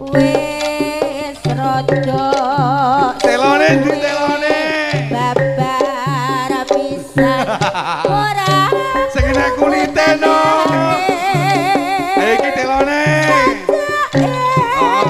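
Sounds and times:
gamelan metallophones: 0:00.0 - 0:15.0
hand drums: 0:00.0 - 0:15.0
vibrato melody line: 0:09.0 - 0:11.7.

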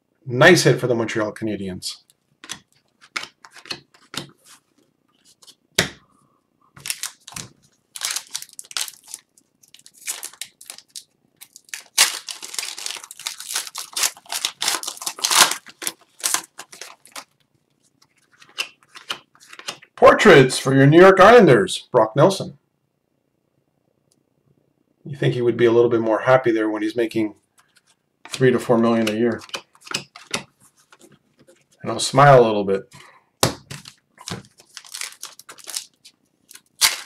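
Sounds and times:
cards sliding and shuffling: 0:02.4 - 0:05.9, 0:18.2 - 0:19.9, 0:27.6 - 0:31.8
wrapper crinkling and tearing: 0:06.8 - 0:19.7, 0:33.7 - 0:37.0.

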